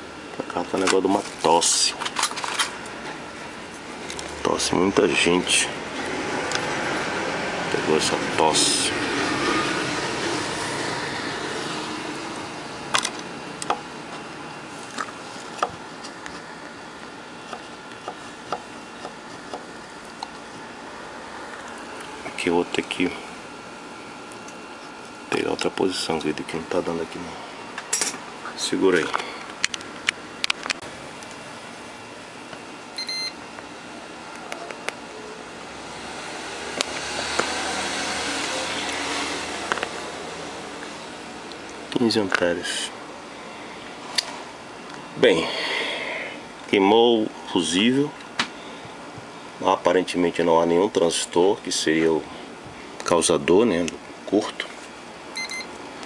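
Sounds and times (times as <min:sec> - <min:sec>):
multimeter beep: 0:33.0 - 0:33.4, 0:55.4 - 0:55.8.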